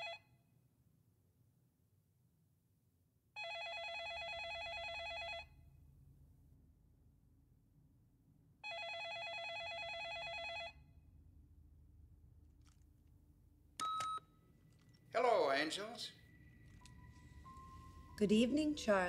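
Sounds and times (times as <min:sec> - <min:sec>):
telephone ringing: 0:03.4 - 0:05.5, 0:08.6 - 0:10.8.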